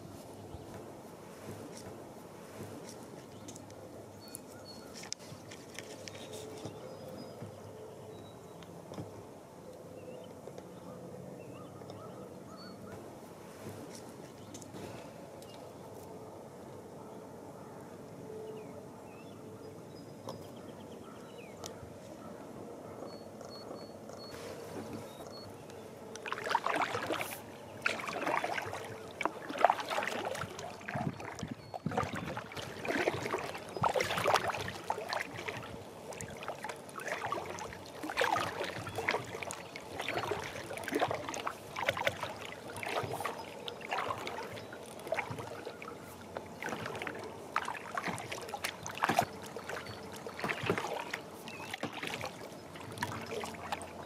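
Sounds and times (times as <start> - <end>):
water trickling off paddle: 24.4 - 54.0
paddle splashing into water: 26.2 - 54.0.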